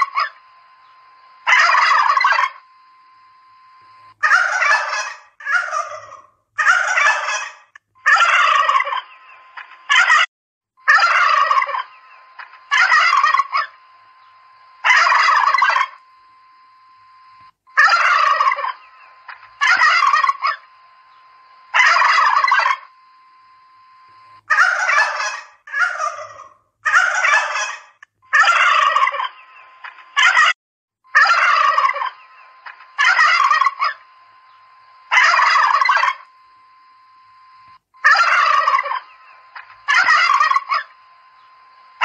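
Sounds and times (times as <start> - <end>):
turkeys gobbling: 0.0 - 0.4, 1.4 - 2.6, 4.2 - 10.3, 10.9 - 13.8, 14.8 - 16.0, 17.8 - 20.7, 21.7 - 22.9, 24.5 - 30.5, 31.1 - 34.0, 35.1 - 36.3, 38.0 - 41.0
faint steady high tone: 0.0 - 5.0, 10.8 - 25.4, 31.1 - 42.0.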